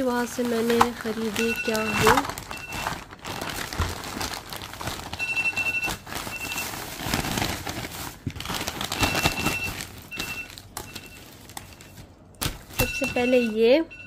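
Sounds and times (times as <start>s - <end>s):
plastic bags rustling: 0.0s - 13.8s.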